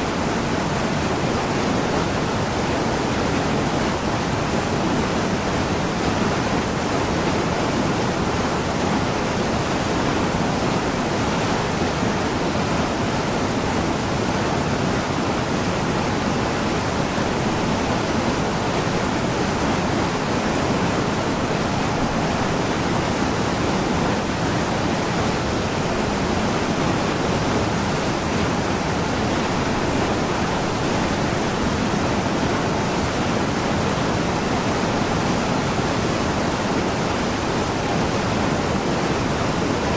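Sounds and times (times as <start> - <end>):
stream rushing over boulders: 0.0 - 39.9.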